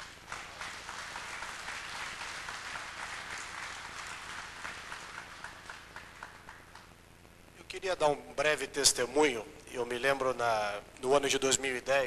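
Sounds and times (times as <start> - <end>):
audience applauding: 0.0 - 7.0.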